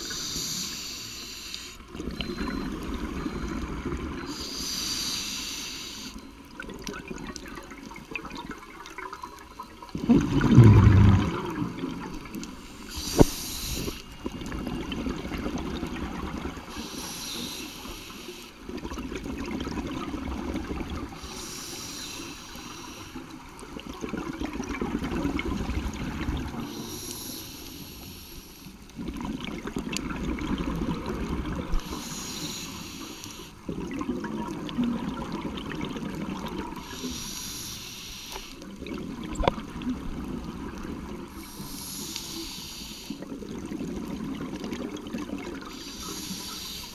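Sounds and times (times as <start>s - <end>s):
regulator inhalation hiss: 0.0s - 1.8s, 4.3s - 6.1s, 12.8s - 14.1s, 16.8s - 18.5s, 21.2s - 23.2s, 26.7s - 28.7s, 31.8s - 33.6s, 36.8s - 38.6s, 41.4s - 43.2s, 45.7s - 46.9s
exhaled bubbles rumbling: 10.0s - 12.3s.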